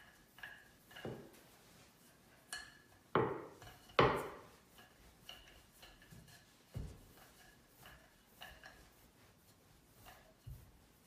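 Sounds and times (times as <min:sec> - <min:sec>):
rolling pin knocking on wooden board: 0:03.2 - 0:04.5.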